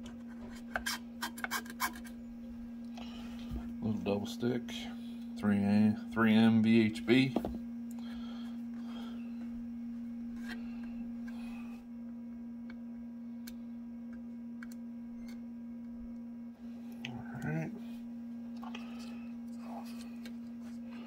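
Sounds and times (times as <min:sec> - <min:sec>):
low electrical hum: 0:00.0 - 0:21.0.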